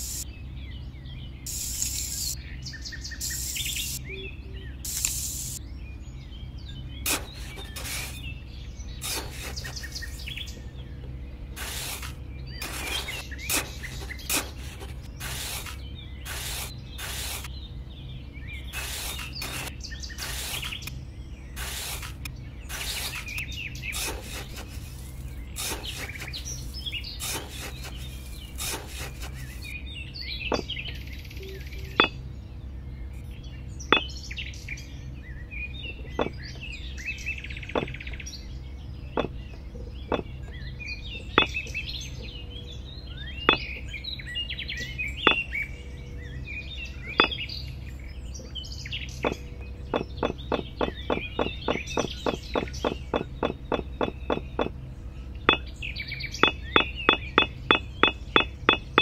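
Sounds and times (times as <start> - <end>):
birds chirping: 0.0 - 59.0
trowel scraping sand: 7.0 - 8.3, 9.0 - 10.5, 11.6 - 17.5, 18.7 - 20.9, 21.6 - 29.8
clay bricks clicking: 56.4 - 59.0.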